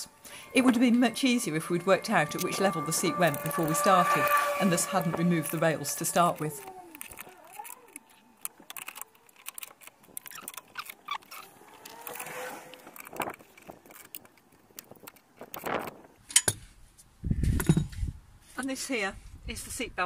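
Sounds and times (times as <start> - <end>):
hand tool clicking on nuts: 5.4 - 15.7.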